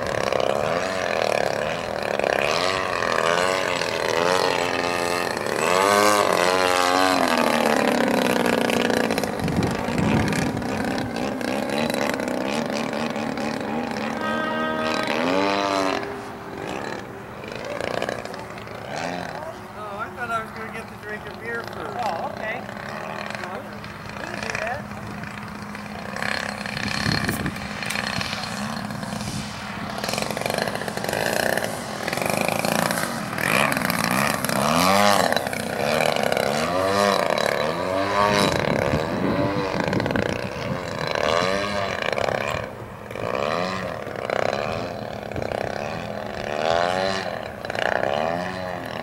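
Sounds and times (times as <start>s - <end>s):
model airplane engine buzzing: 0.0s - 49.0s.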